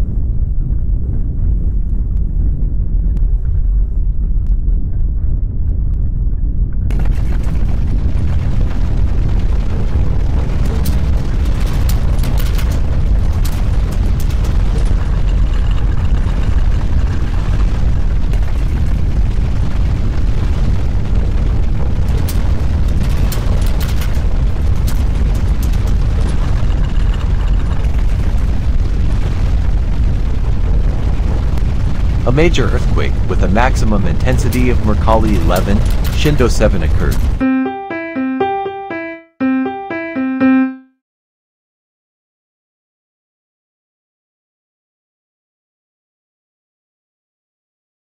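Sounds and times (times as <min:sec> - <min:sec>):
crackles and rattles: 0:00.0 - 0:37.4
deep earthquake rumble: 0:00.0 - 0:37.4.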